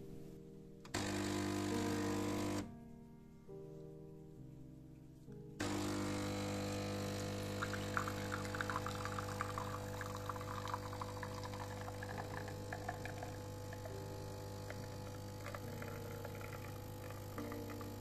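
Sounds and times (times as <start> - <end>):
espresso machine pump humming: 1.0 - 2.6, 5.6 - 18.0
espresso dripping and splattering: 7.5 - 14.0, 14.6 - 18.0.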